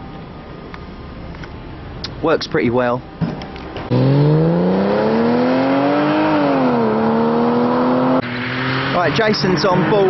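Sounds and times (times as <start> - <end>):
car engine accelerating hard: 3.9 - 10.0.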